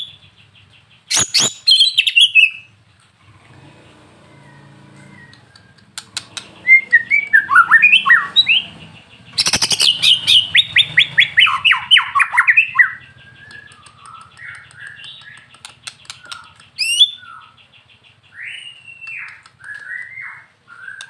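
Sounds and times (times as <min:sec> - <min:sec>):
bird singing whistled phrases: 0:01.1 - 0:02.7, 0:06.6 - 0:08.7, 0:09.4 - 0:15.5, 0:16.2 - 0:17.6, 0:18.3 - 0:21.0
bird sharp clicks: 0:05.2 - 0:06.6, 0:12.2 - 0:17.4, 0:18.5 - 0:21.0.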